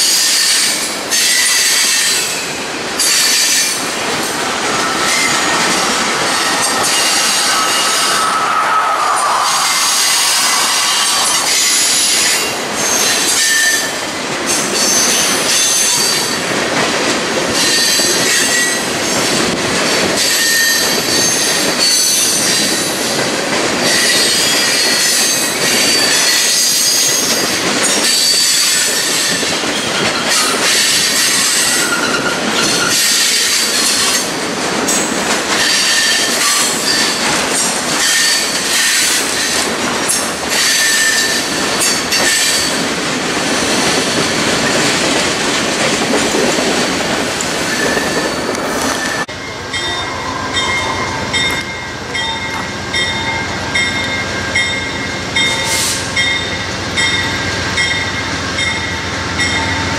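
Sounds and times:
steel train wheels on rails: 0.0s - 59.9s
high-pitched wheel squeals: 4.7s - 14.0s.

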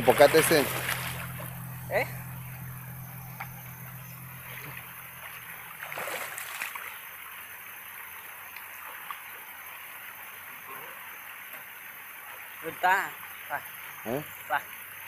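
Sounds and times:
water splash: 0.0s - 2.1s, 4.4s - 7.2s
creek water trickling: 0.0s - 15.0s.

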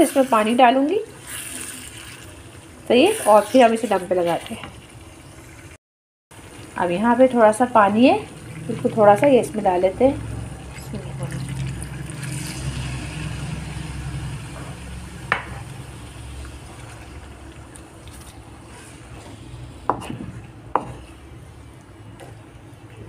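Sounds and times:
water pouring into hot wok: 1.2s - 4.2s, 10.2s - 18.1s.

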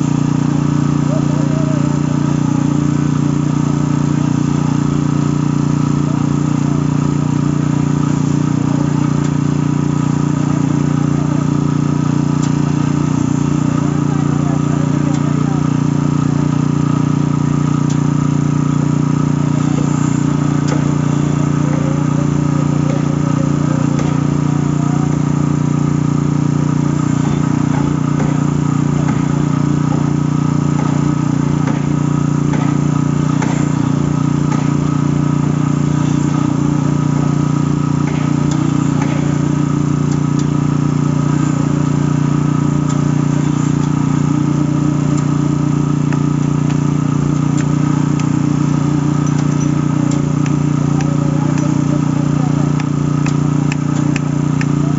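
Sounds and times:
machinery engine drone: 0.0s - 54.9s
hoes scraping wet concrete: 30.7s - 33.9s, 38.0s - 39.4s.

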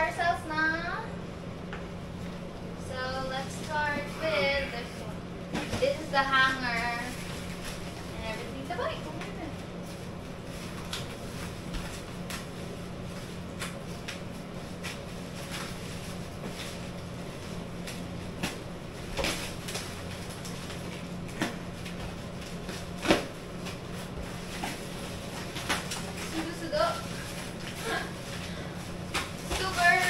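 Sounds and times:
steady low hum: 0.0s - 30.0s
plastic packaging crinkling: 6.0s - 30.0s.

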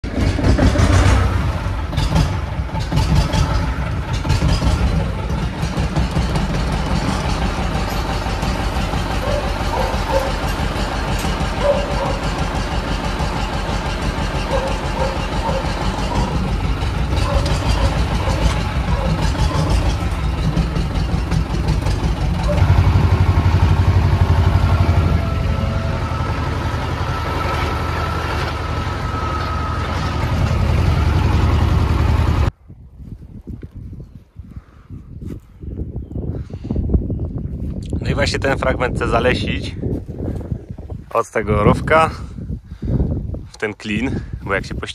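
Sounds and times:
tractor diesel engine running: 0.0s - 32.6s.

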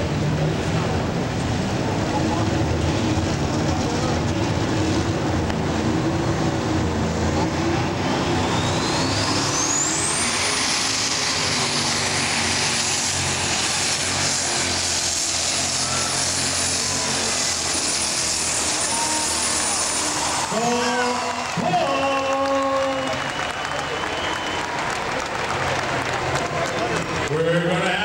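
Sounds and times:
diesel engine roaring: 0.0s - 28.0s
turbocharger whine: 0.0s - 28.0s.

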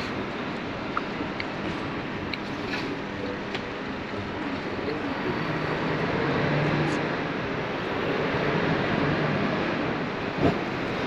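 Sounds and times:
street traffic noise: 0.0s - 11.0s
passing vehicle engine: 4.9s - 11.0s.

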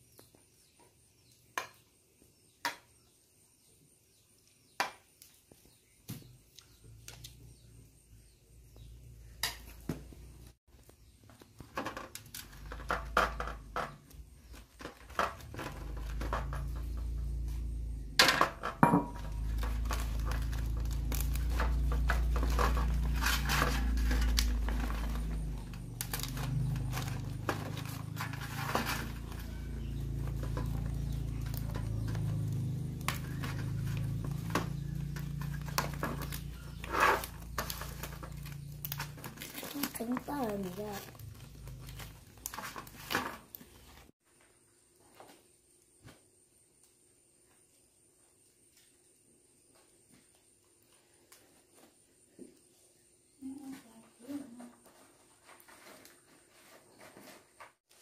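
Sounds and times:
banana leaves rustling: 19.1s - 44.1s.

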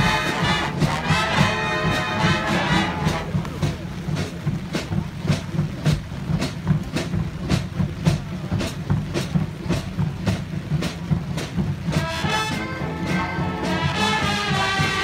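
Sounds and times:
brass instruments: 0.0s - 4.6s, 8.7s - 15.0s
marching drums playing cadence: 0.0s - 15.0s.

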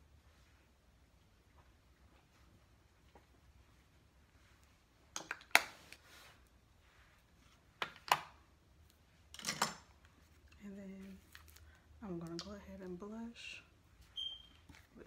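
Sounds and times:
makeup items clicking: 5.1s - 5.7s.

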